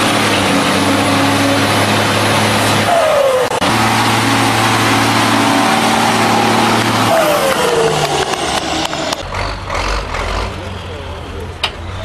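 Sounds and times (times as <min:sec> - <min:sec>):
diesel truck engine under load: 0:00.0 - 0:12.0.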